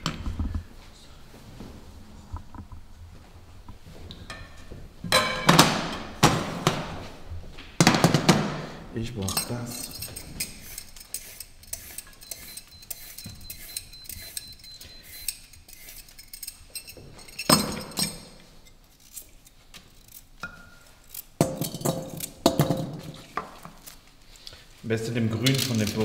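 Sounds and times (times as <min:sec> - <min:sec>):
kitchenware clinks and knocks: 0:04.2 - 0:06.6, 0:09.2 - 0:18.4, 0:21.4 - 0:23.7, 0:25.3 - 0:26.0
peeler scraping carrot: 0:09.3 - 0:17.0.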